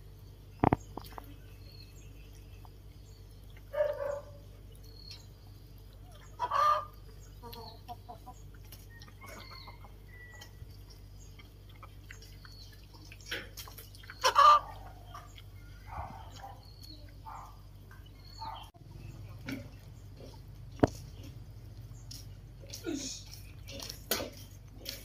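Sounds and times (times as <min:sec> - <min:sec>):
hen clucking softly: 0:06.0 - 0:10.6, 0:11.3 - 0:16.6
hen squawking: 0:14.2 - 0:14.8.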